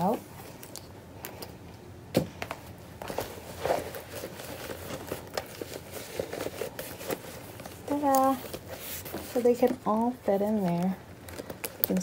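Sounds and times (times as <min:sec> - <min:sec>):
leather pouches rustling: 0:03.0 - 0:12.0.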